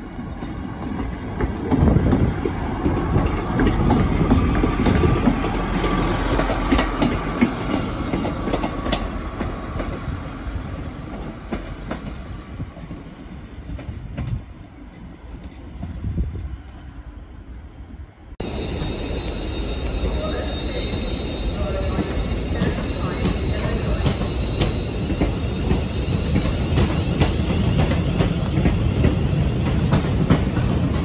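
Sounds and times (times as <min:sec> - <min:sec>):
train diesel engines running: 0:00.0 - 0:15.8, 0:17.7 - 0:31.0
train wheels clicking over rail joints: 0:00.1 - 0:10.2, 0:21.8 - 0:31.0.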